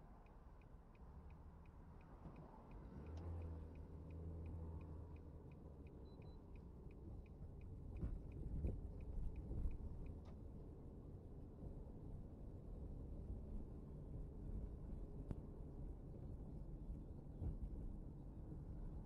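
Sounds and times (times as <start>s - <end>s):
engine and road hum: 0.0s - 19.0s
car turn signal ticking: 0.2s - 8.4s.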